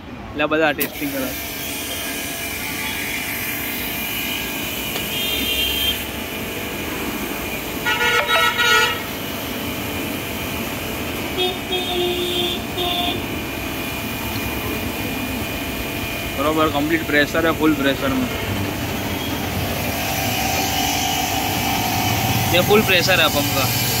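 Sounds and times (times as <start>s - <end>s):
street traffic: 0.0s - 24.0s
pressure washer running: 0.8s - 24.0s
water jet hissing: 0.8s - 24.0s
vehicle horn honking: 4.1s - 6.2s, 7.8s - 9.2s, 11.3s - 13.3s.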